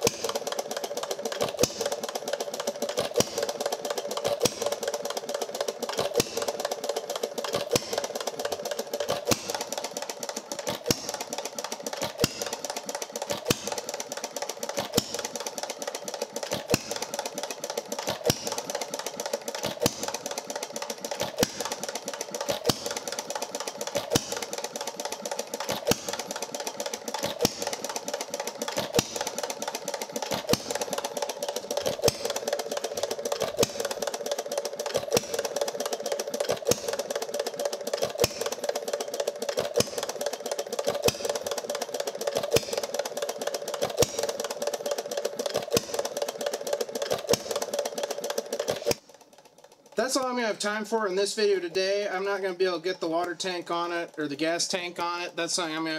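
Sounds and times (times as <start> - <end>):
engine mechanism clattering: 0.0 - 55.9
engine firing sharp report: 18.0 - 49.0.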